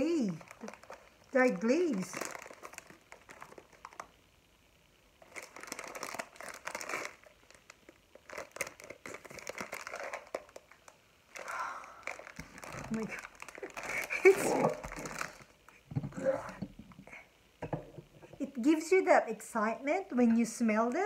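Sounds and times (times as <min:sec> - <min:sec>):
plastic bag crinkling: 0:00.0 - 0:04.2, 0:05.2 - 0:15.6.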